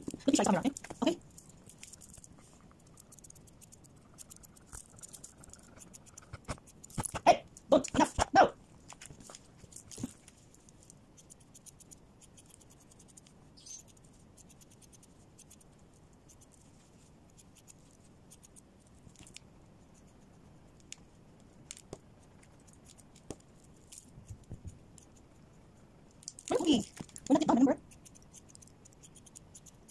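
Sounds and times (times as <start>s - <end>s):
scissors snipping fur: 0.0s - 10.2s, 11.2s - 16.6s, 17.3s - 20.2s, 26.1s - 29.9s.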